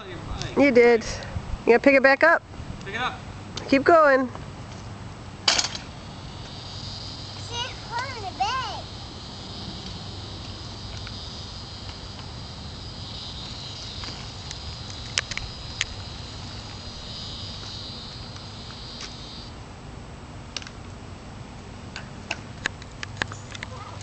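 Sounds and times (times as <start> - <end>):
high-pitched insect chorus: 5.5 - 19.6
sharp clicks: 14.4 - 16.0.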